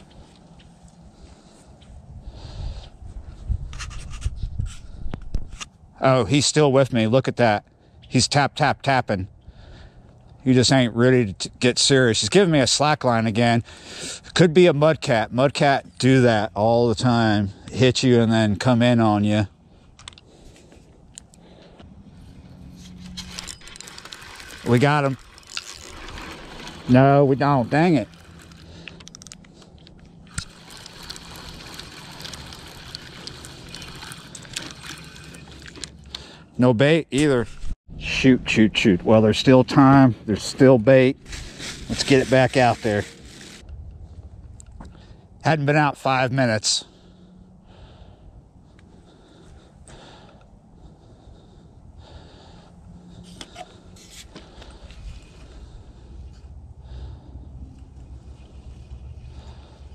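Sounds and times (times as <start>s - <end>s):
wind rumbling on microphone: 1.9s - 5.6s, 43.6s - 45.3s
spinning reel cranking: 22.9s - 36.1s
reel clicks: 22.9s - 36.2s.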